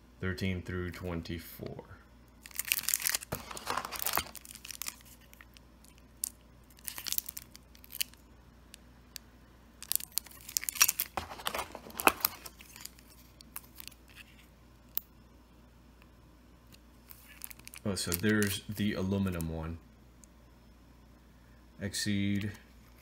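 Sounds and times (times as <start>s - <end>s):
plastic sleeves crinkling: 2.4s - 8.2s, 9.8s - 15.0s, 17.0s - 18.9s.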